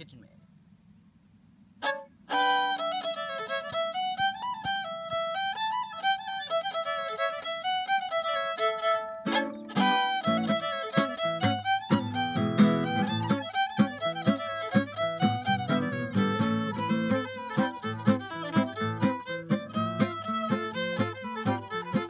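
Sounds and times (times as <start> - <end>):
fiddle playing a jig: 1.8 - 22.0
acoustic guitar chords: 8.2 - 22.0.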